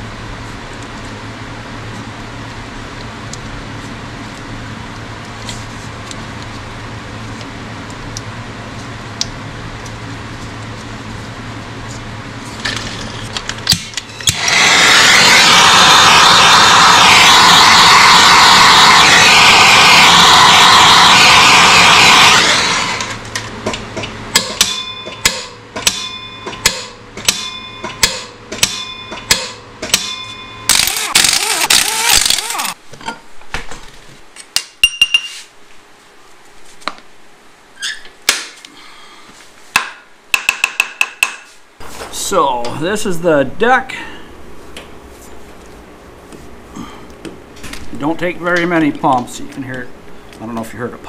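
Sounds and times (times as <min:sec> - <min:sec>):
steady low hum: 0:00.0 - 0:34.8, 0:41.5 - 0:51.0
gas torch hissing: 0:14.2 - 0:23.3, 0:30.7 - 0:32.8.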